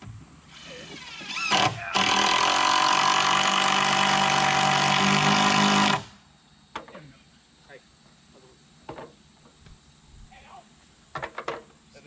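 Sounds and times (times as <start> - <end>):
power drill driving a screw: 0.5 - 6.1.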